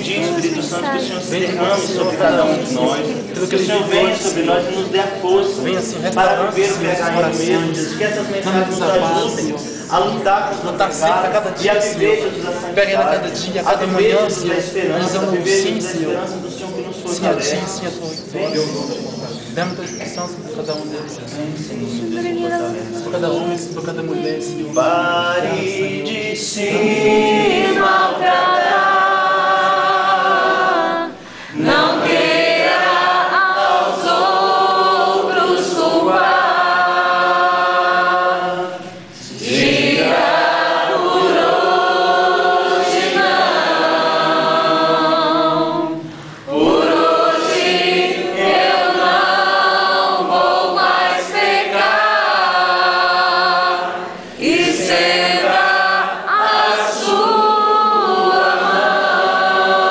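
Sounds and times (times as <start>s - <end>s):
group singing unaccompanied: 0.0s - 20.4s, 21.1s - 59.9s.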